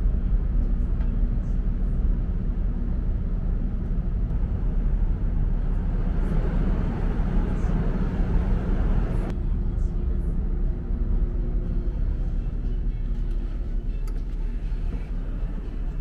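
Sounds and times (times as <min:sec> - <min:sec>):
wind rumbling on microphone: 0:00.0 - 0:12.6.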